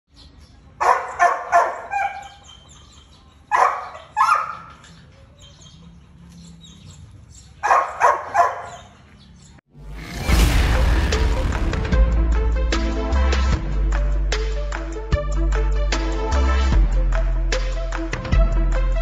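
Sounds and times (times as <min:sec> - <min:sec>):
dog barking: 0:00.8 - 0:02.8, 0:03.5 - 0:04.8, 0:07.6 - 0:09.1.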